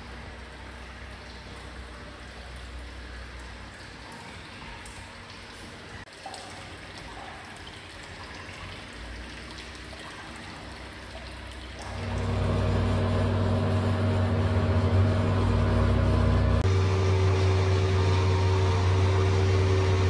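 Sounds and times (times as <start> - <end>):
mechanical hum with hiss: 0.0 - 6.0, 6.6 - 20.0
water trickling into a bath: 0.0 - 14.9.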